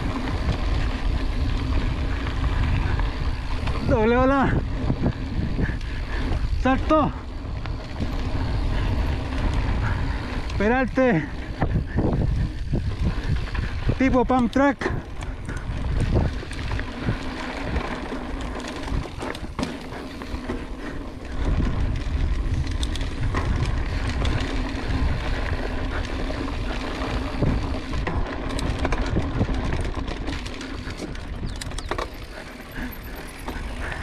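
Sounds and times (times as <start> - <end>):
bike rattling over bumps: 0.0 - 34.0
bike tyres rolling on dirt: 0.0 - 34.0
wind rumbling on microphone: 0.0 - 34.0.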